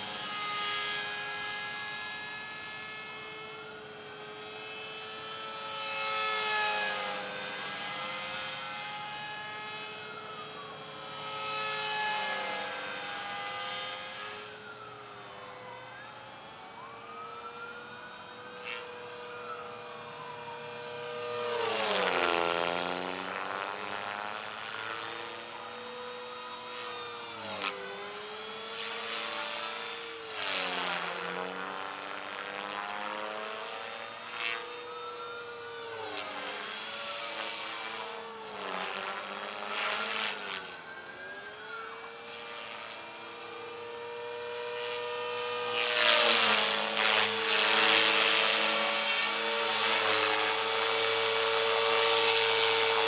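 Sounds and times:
rc helicopter motor whine: 0.0 - 53.0.

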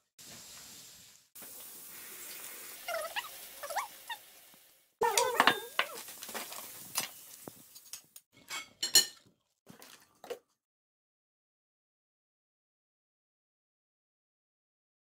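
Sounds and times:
cutlery and plates clinking: 5.0 - 7.2, 8.4 - 10.4.

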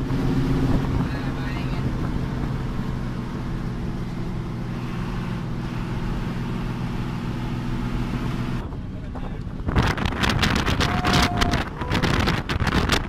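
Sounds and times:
road noise hiss: 0.0 - 10.8
bus engine droning: 0.0 - 13.0.

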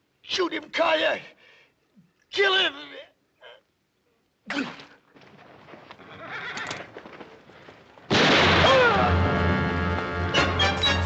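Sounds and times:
stamping hooves: 5.2 - 8.5
horse whinnying: 6.0 - 7.0
loud music: 8.6 - 11.0.

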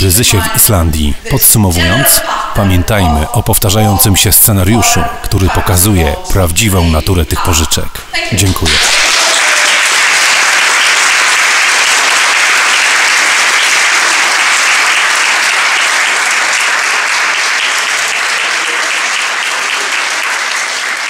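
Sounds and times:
audience applauding: 8.7 - 21.0.

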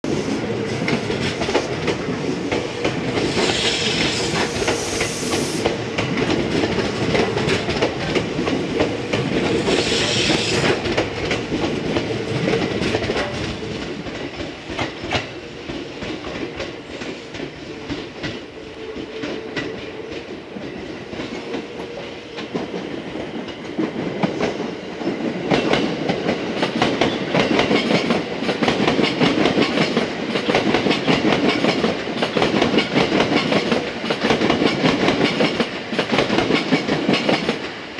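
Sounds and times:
train wheels rumbling on rail: 0.0 - 37.9.

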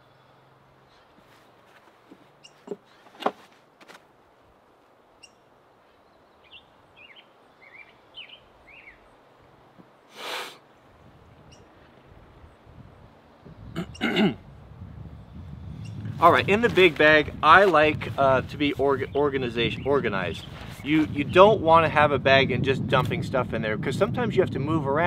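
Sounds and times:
songbird chirping: 0.0 - 3.2, 4.7 - 14.2, 18.6 - 21.6.

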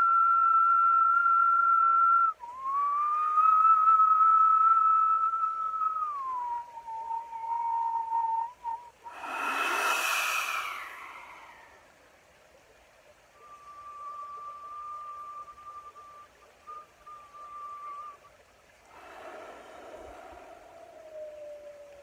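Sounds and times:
man whistling: 0.0 - 11.8, 13.4 - 18.3
breathy blowing rush: 9.0 - 12.0, 18.8 - 22.0.

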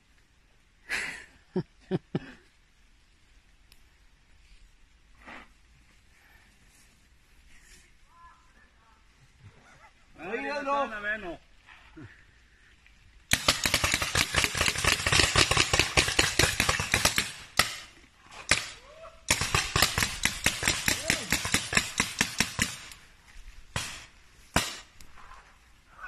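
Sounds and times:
paintball markers firing: 13.3 - 17.9, 18.5 - 23.0, 23.7 - 25.0.

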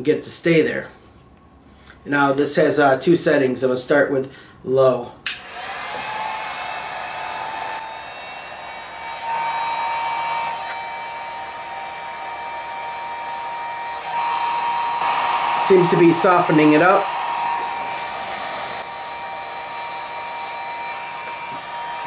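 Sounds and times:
heat gun blowing air: 5.3 - 22.0.

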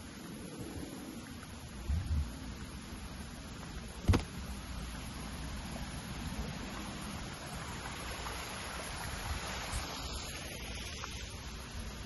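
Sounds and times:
low rumble and hiss: 0.0 - 12.0
camera handling knock: 4.1 - 4.3.

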